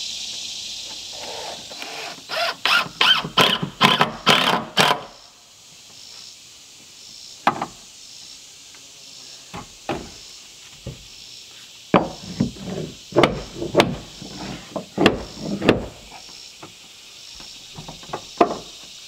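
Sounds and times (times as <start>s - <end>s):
wooden knocks: 11.9s - 16.0s, 17.7s - 18.8s.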